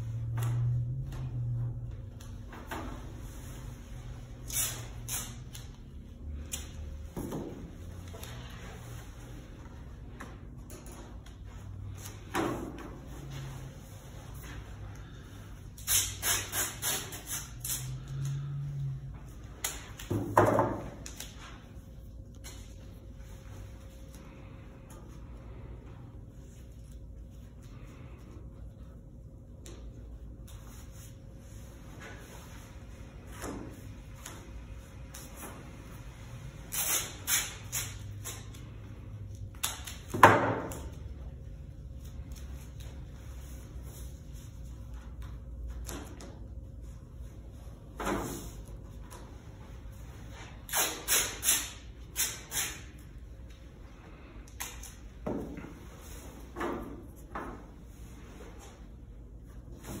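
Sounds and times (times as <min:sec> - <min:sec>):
masking tape ripping off roll: 0:36.7 - 0:38.5, 0:50.7 - 0:52.9.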